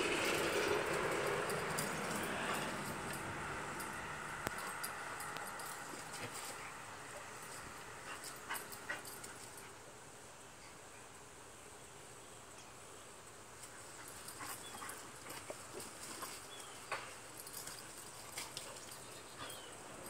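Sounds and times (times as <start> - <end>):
dogs scuffling: 0.0 - 9.6, 13.6 - 20.0
faint dog noises: 0.9 - 10.0, 13.6 - 20.0.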